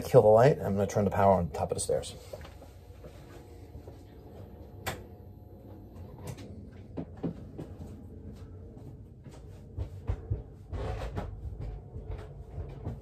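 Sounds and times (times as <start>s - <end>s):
low steady hum: 0.0s - 13.0s
knocks and bumps: 8.8s - 13.0s.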